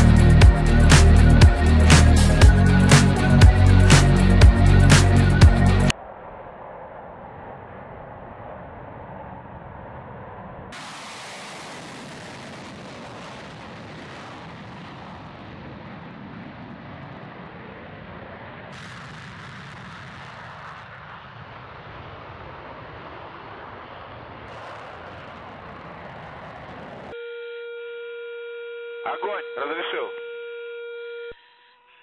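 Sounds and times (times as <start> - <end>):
jet engines at takeoff power: 5.9 - 27.2.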